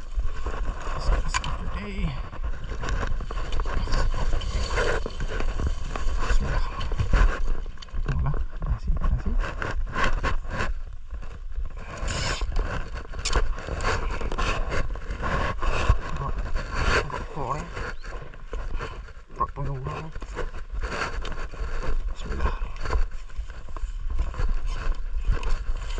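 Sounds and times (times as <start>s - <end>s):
rustling scraping and clicking: 0.0s - 25.9s.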